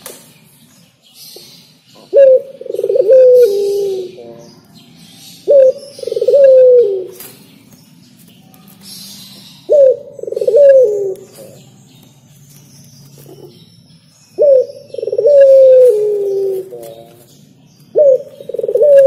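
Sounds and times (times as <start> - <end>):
dove cooing: 2.0 - 4.4, 5.4 - 7.2, 9.6 - 11.6, 14.4 - 17.3, 17.9 - 19.0.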